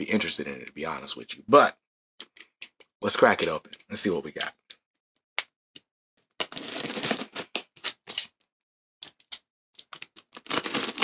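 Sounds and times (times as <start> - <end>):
cardboard scraping and tearing: 6.5 - 8.1, 10.3 - 11.0.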